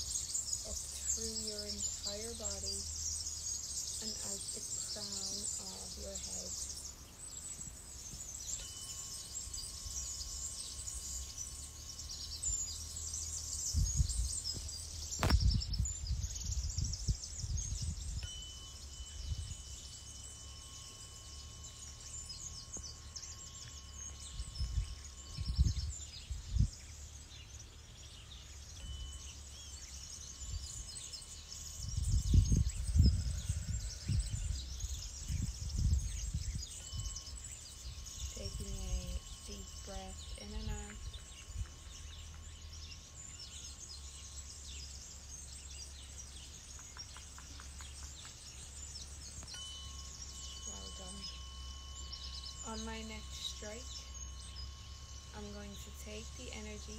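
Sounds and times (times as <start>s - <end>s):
tuning fork ringing: 0.0s - 46.8s, 47.8s - 56.9s
birds chirping: 0.0s - 56.9s
wind rumbling on microphone: 12.2s - 19.9s, 22.7s - 27.0s, 30.2s - 43.7s.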